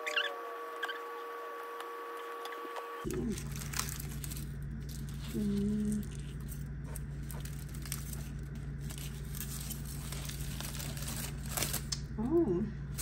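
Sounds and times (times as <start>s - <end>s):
steady low hum: 0.0s - 13.0s
aluminium foil crinkling: 3.0s - 12.1s.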